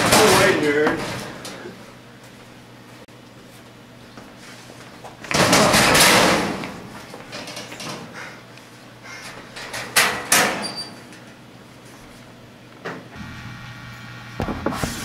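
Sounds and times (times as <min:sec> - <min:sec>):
metal locker door banging shut: 0:00.0 - 0:01.4, 0:05.3 - 0:08.0, 0:09.6 - 0:11.0.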